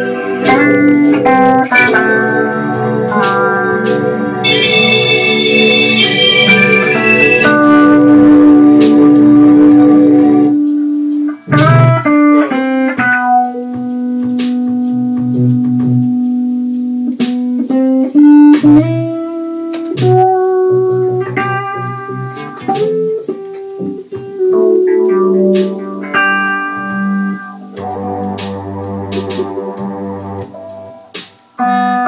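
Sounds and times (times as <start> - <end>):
steady ticking beat: 0.0 - 12.2, 18.6 - 31.6
electric guitar playing: 0.0 - 32.0.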